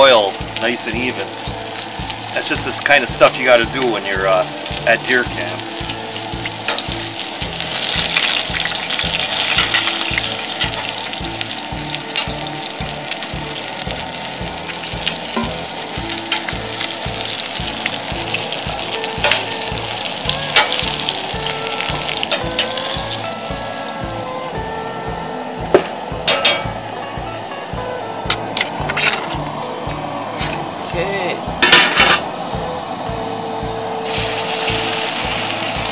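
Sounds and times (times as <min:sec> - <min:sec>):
fish frying in oil: 0:00.0 - 0:24.6, 0:34.0 - 0:35.9.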